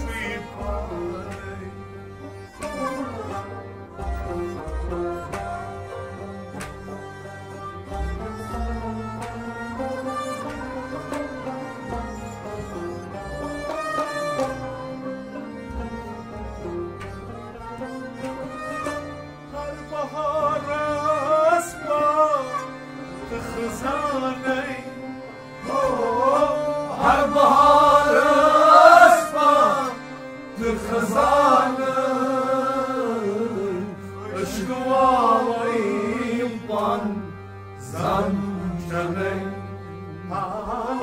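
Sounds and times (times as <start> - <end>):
man singing: 0.0 - 1.8, 19.6 - 25.0, 30.6 - 41.0
instrumental and percussion accompaniment: 0.0 - 32.5.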